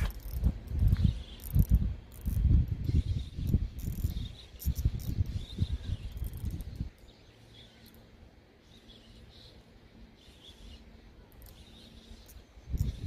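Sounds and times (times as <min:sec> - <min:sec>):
fishing reel whirring: 0:00.0 - 0:07.0.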